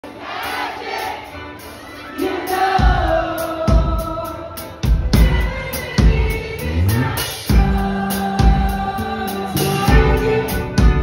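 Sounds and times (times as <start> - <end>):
drums: 0.0 - 11.0
bass guitar: 4.9 - 11.0.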